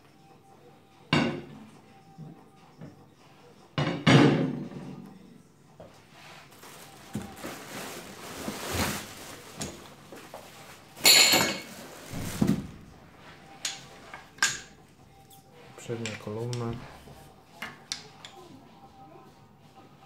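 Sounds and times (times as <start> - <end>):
foam sleeve rustling: 6.2 - 11.0, 11.6 - 13.0
dull thuds: 12.1 - 13.2.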